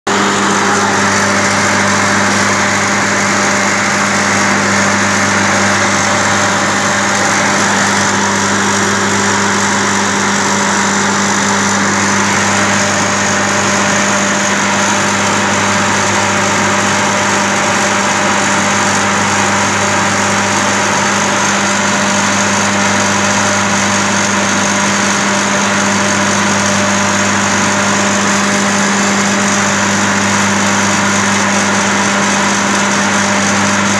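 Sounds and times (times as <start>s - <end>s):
compressor machine drone: 0.1s - 33.9s.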